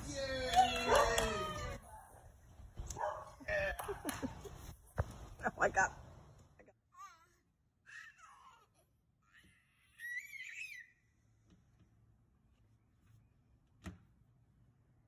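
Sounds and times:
toddler squealing: 9.3s - 11.0s.

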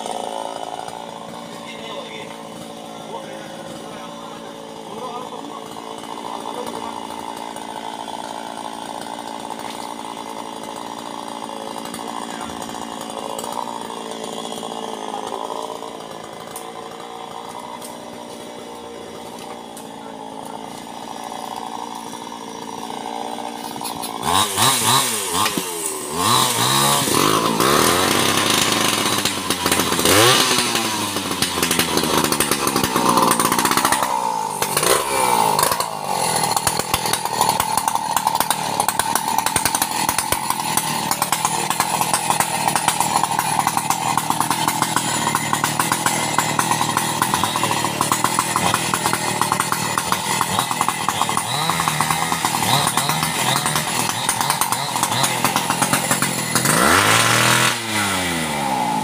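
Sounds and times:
chainsaw revving loudly: 0.0s - 59.0s
distant chainsaw running: 0.0s - 59.0s.

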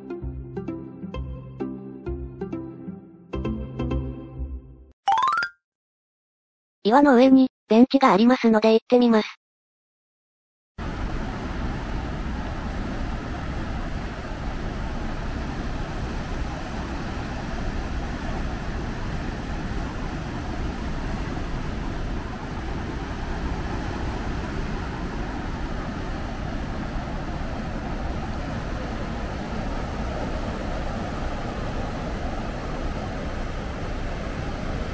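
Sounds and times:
surf on rocky shore: 10.8s - 34.9s.

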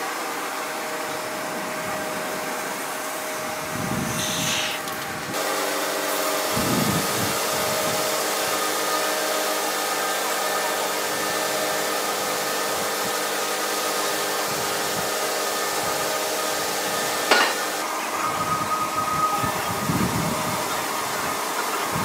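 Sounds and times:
sawmill machine noise: 0.0s - 22.0s.

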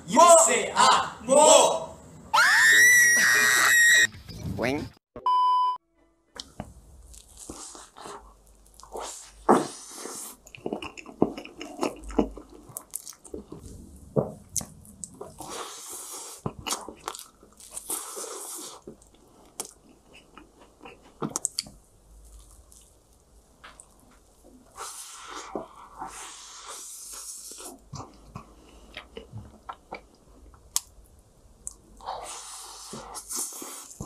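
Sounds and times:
short steady beep: 5.2s - 5.8s
biting and chewing ice cream cake: 6.4s - 13.8s.

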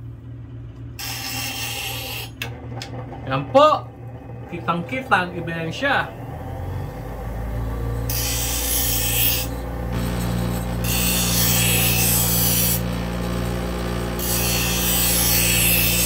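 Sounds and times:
bench grinder motor humming: 0.8s - 16.0s
knife grinding on wheel: 1.0s - 3.4s, 7.8s - 16.0s.

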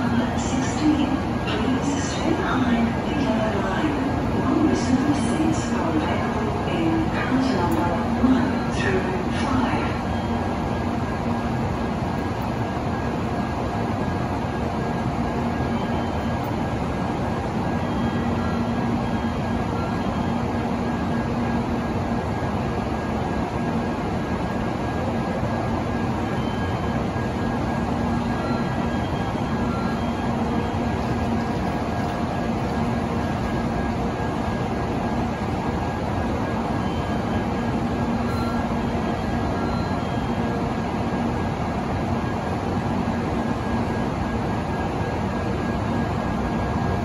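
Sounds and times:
faint constant hum: 0.0s - 47.0s.

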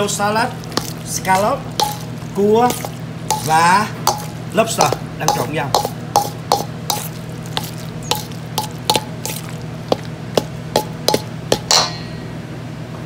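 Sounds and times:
steady low hum: 0.0s - 13.0s
utensil clinking against mixing bowl: 0.4s - 11.9s
utensil scraping bowl: 0.5s - 11.7s.

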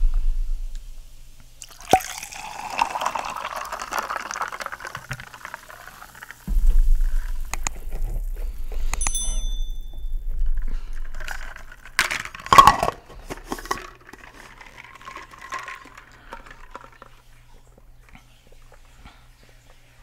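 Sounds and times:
tumbler clink: 9.0s - 10.2s
plastic knocking and rattling: 10.6s - 17.1s.

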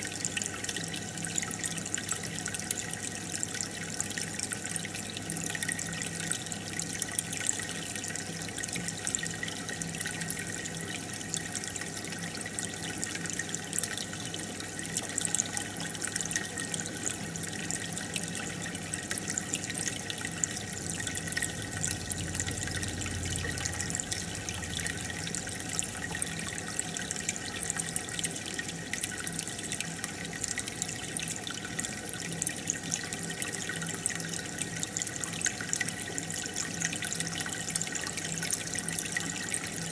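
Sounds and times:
aquarium water bubbling: 0.0s - 39.9s
steady low hum: 20.1s - 27.1s.

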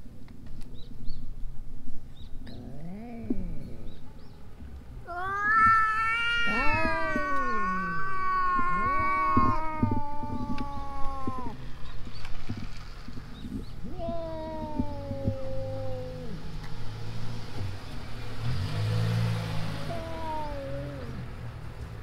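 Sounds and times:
cats deep moaning calls: 2.4s - 4.0s, 5.0s - 11.7s, 13.7s - 16.6s, 19.6s - 21.4s
cat growling call: 2.5s - 4.0s, 5.0s - 11.6s, 13.8s - 16.6s, 19.6s - 21.3s
cat high yowl: 5.0s - 11.6s, 13.9s - 16.5s, 19.7s - 21.2s.

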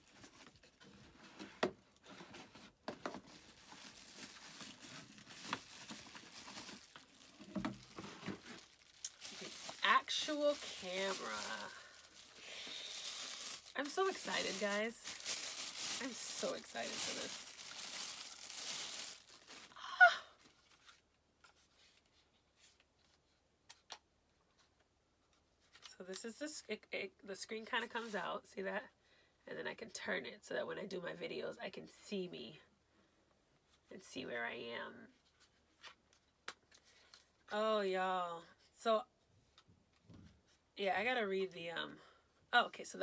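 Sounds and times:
cardboard and bubble wrap rustling: 0.0s - 19.8s.

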